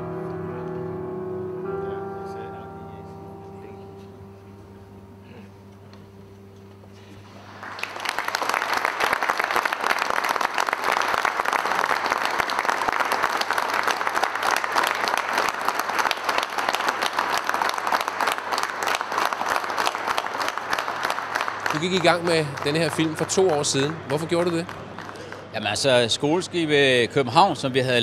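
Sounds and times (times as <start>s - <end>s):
quiet music notes: 0.0s - 7.4s
audience applauding: 7.2s - 26.1s.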